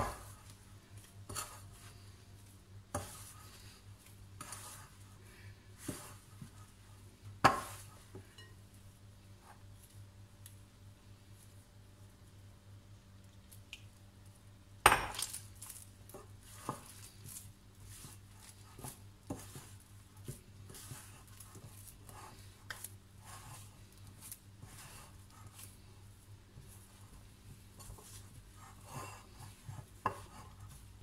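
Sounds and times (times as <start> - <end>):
hands kneading dough in glass bowl: 15.1 - 31.0.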